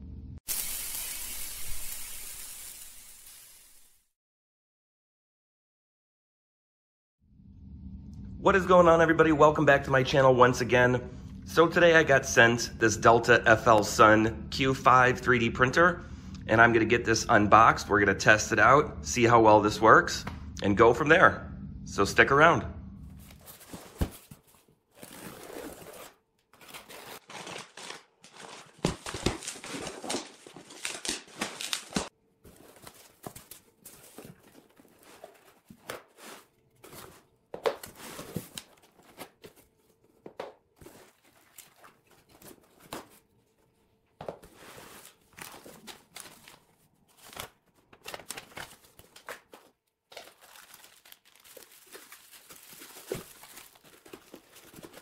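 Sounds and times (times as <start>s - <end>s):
cardboard flaps scraping: 23.2s - 43.3s, 44.2s - 49.7s
packaging rustling and crinkling: 23.2s - 55.0s
packing tape tearing: 25.0s - 39.6s, 44.9s - 55.0s.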